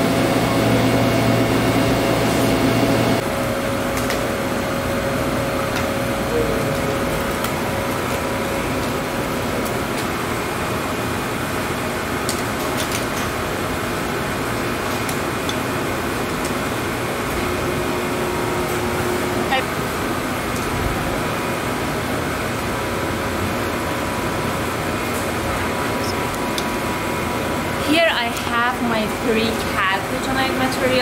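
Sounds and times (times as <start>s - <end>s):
air handling hiss and hum: 0.0s - 3.2s
deep machine hum: 0.0s - 3.5s, 15.8s - 31.0s.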